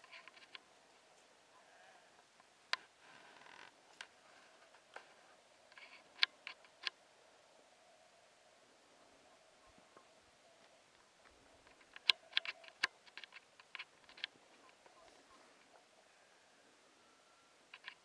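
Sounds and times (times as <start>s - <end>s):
outdoor background hiss: 0.0s - 18.0s
faint sharp clicks: 9.7s - 15.8s, 17.7s - 18.0s.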